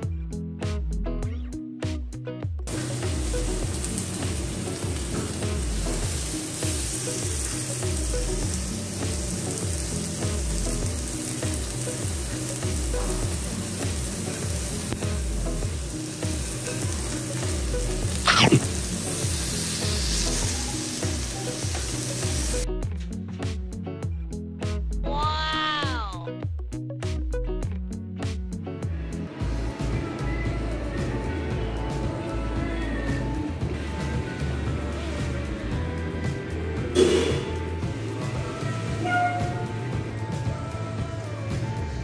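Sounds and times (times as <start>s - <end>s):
meat sizzling on a grill: 2.7s - 22.7s, 31.9s - 42.0s.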